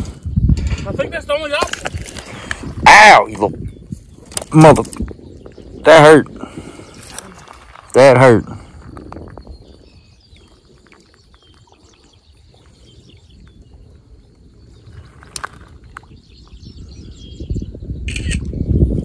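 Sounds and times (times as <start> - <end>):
wind rumble on microphone: 0.0 - 19.0
faint bird chirps: 9.4 - 18.8.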